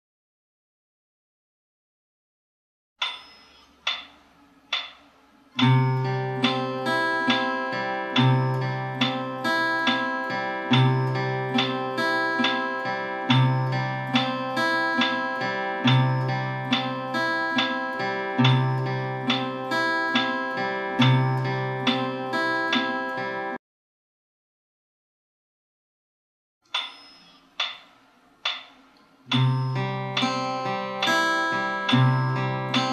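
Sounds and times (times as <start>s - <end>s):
fingerpicked acoustic guitar: 5.6s - 23.6s, 29.3s - 32.9s.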